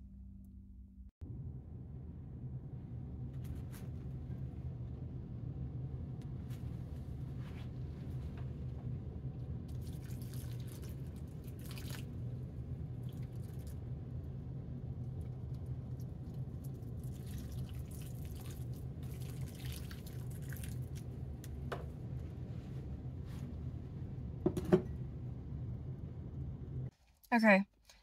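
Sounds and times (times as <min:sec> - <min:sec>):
steady low hum: 0:00.0 - 0:27.4
water pouring onto soil: 0:09.7 - 0:12.1, 0:16.9 - 0:21.1.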